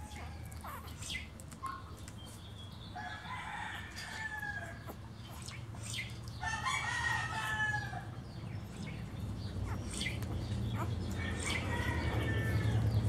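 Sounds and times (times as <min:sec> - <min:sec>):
drawn-out animal calls: 0:09.0 - 0:13.0.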